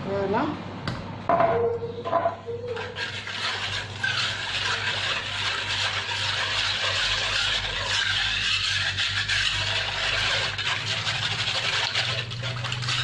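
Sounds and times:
whisk swishing liquid in bowl: 0:02.7 - 0:13.0.

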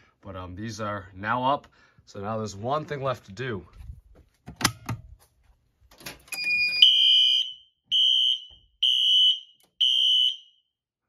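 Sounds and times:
fire alarm horn blasts: 0:06.4 - 0:10.7.

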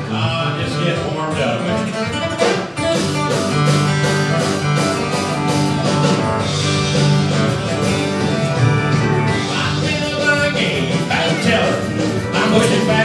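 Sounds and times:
bass: 0:00.0 - 0:13.0
drums: 0:00.0 - 0:13.0
guitar picking: 0:00.0 - 0:13.0.

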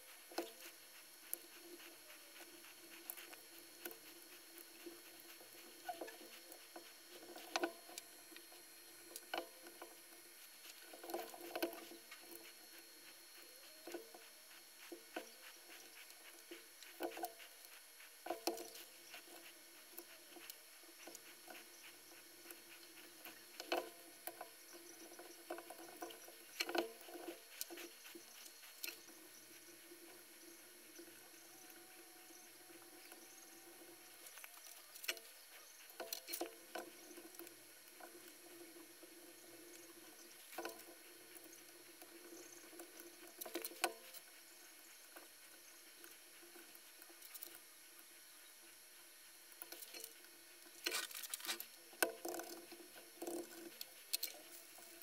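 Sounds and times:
soldering tool clicks and scratching: 0:00.0 - 0:29.8, 0:49.6 - 0:55.0
low steady hum: 0:00.0 - 0:55.0.

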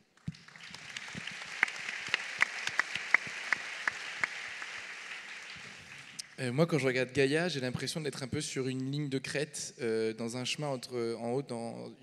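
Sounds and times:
audience applauding: 0:00.2 - 0:06.4.

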